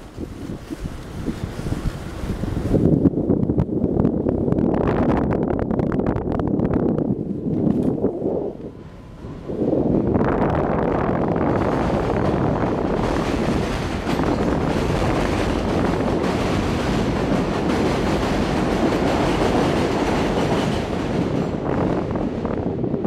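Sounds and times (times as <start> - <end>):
train wheels on rails: 6.8 - 23.0.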